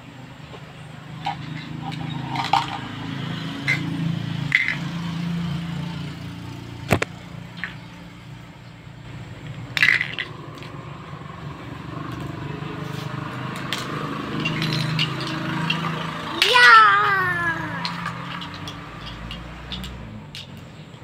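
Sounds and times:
plastic toys clattering: 1.2 - 3.0, 3.6 - 3.9, 4.5 - 4.9, 9.4 - 10.8, 13.5 - 20.8.

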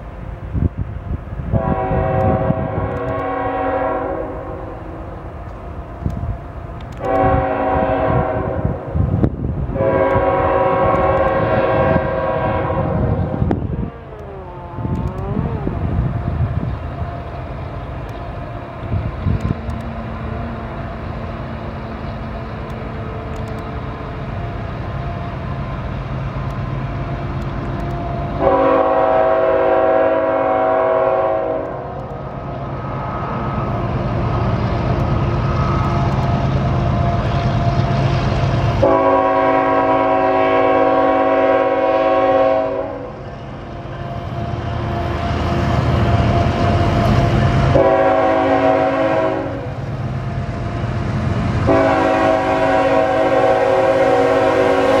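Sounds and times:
diesel locomotive rumble: 0.0 - 55.0
train air horn blasts: 1.5 - 5.2, 7.0 - 16.7, 27.8 - 32.2, 38.8 - 43.3, 46.0 - 49.8, 51.6 - 55.0.

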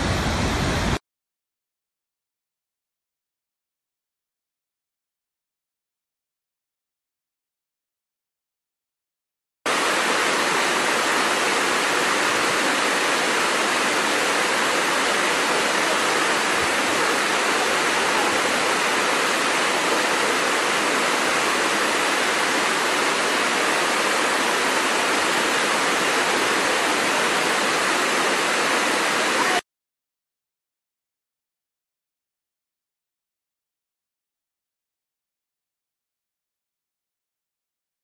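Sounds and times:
waterfall rushing: 0.0 - 1.0, 9.7 - 29.6.

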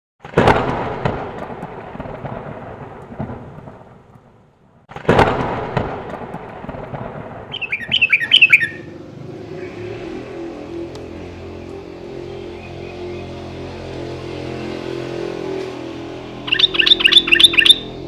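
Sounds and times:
thunderclaps rumbling: 0.2 - 10.6
bird chirps: 7.5 - 8.9, 16.5 - 18.0.

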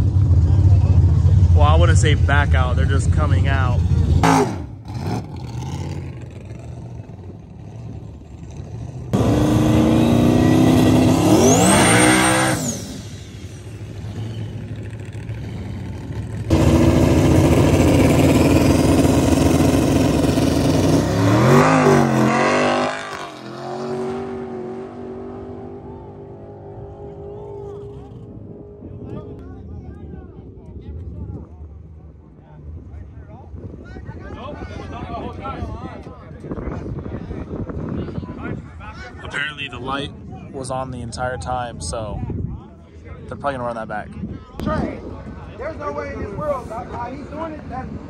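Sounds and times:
drag car engine revving: 0.0 - 28.5
car accelerating at full throttle: 0.0 - 29.6.

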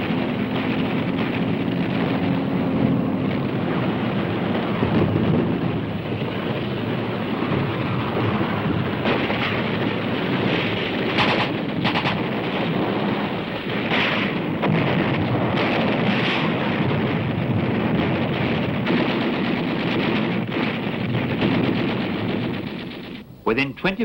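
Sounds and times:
artillery fire din: 0.0 - 23.2
gunfire bursts: 9.0 - 23.2.

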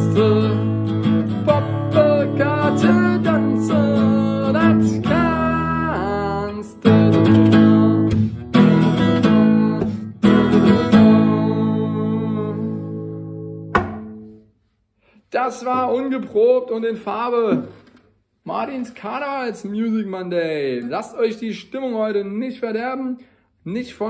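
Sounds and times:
man singing: 0.0 - 8.1, 9.1 - 13.2
acoustic guitar strumming: 0.0 - 14.4.

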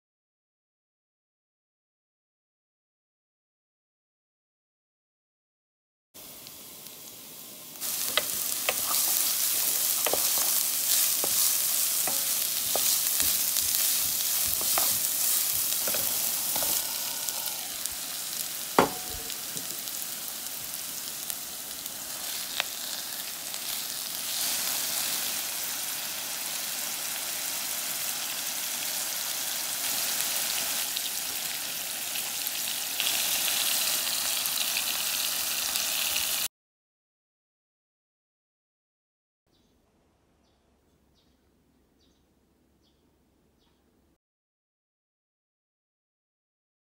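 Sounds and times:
food sizzling in oil: 6.2 - 36.5
wooden spatula stirring: 7.8 - 17.6
sharp knocks: 18.8 - 19.7.

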